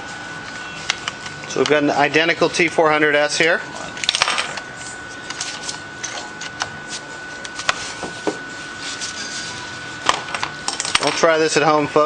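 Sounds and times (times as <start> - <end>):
faint high whine: 0.0 - 6.2.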